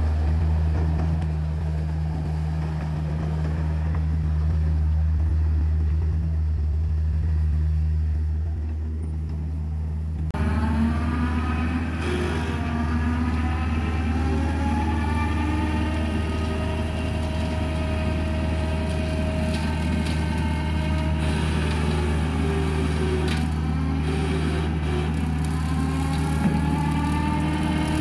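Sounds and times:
diesel excavator engine running: 0:00.0 - 0:28.0.

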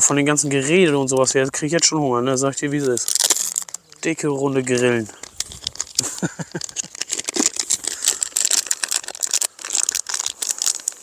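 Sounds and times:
plastic packaging crinkling: 0:02.6 - 0:11.0.

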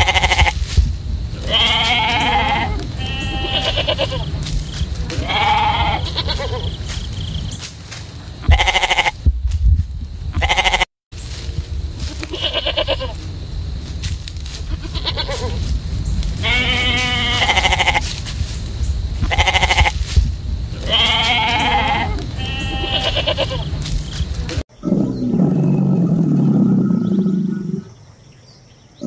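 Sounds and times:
low rumble: 0:00.0 - 0:21.0
sheep bleating: 0:01.4 - 0:04.4, 0:05.1 - 0:06.8, 0:08.5 - 0:09.2, 0:10.4 - 0:10.9, 0:14.7 - 0:15.6, 0:16.4 - 0:18.1, 0:19.2 - 0:20.0, 0:20.8 - 0:23.9.

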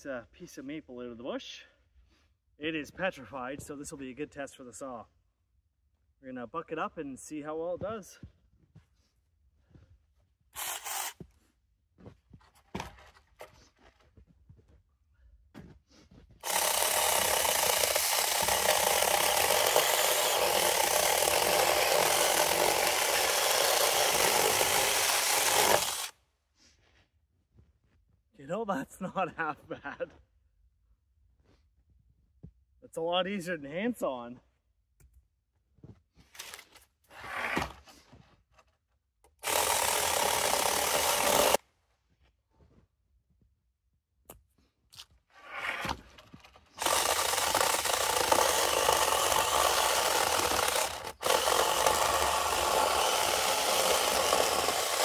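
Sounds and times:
mini chainsaw cutting log: 0:10.6 - 0:11.2, 0:16.4 - 0:26.2, 0:39.3 - 0:41.6, 0:45.5 - 0:55.0.

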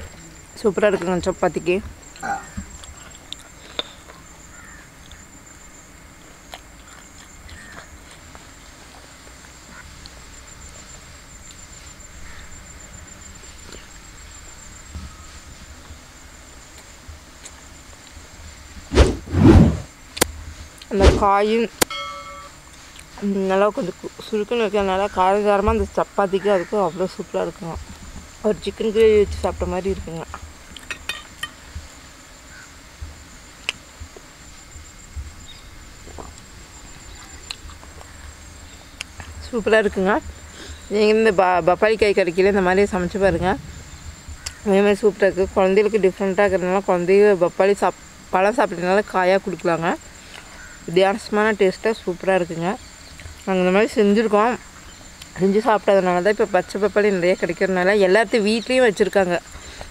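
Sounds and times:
high-pitched insect trill: 0:00.0 - 0:59.9
small eating clicks: 0:02.1 - 0:04.3, 0:06.2 - 0:10.2
soft chewing: 0:02.1 - 0:04.3, 0:06.2 - 0:10.2.

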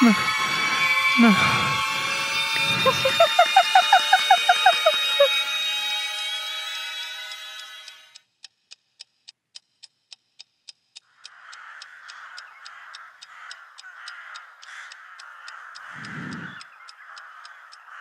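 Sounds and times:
crows cawing: 0:00.0 - 0:05.3, 0:11.1 - 0:18.0
clock ticking: 0:00.0 - 0:05.4, 0:07.9 - 0:18.0
sustained pitched tone: 0:00.0 - 0:08.1.

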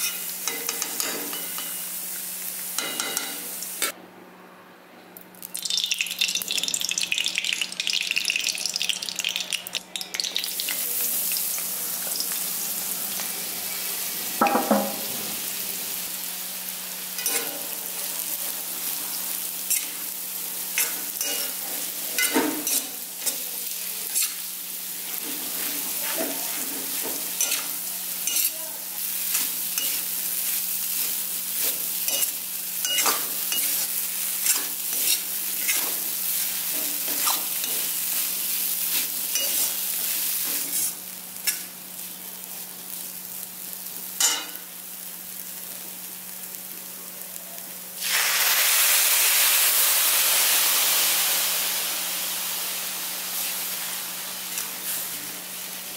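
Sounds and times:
soft sizzle: 0:00.0 - 0:04.0, 0:05.2 - 0:55.9
milk hissing in hot pan: 0:48.0 - 0:55.9.

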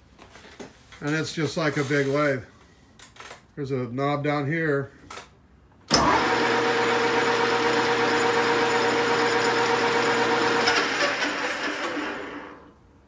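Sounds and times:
lathe gear whine: 0:06.0 - 0:12.6.

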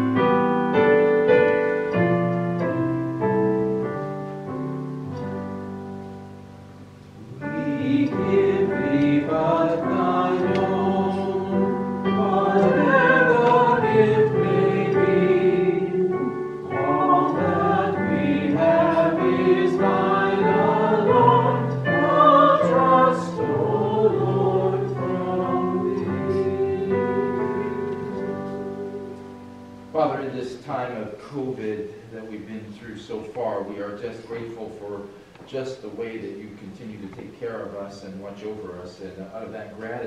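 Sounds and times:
piano notes: 0:00.0 - 0:32.4
person singing with vibrato: 0:07.2 - 0:30.1.

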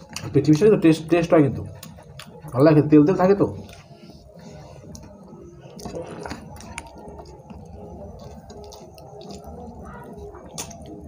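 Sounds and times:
wet squishes of food: 0:00.0 - 0:11.0
person chewing: 0:01.6 - 0:02.6, 0:03.6 - 0:11.0.

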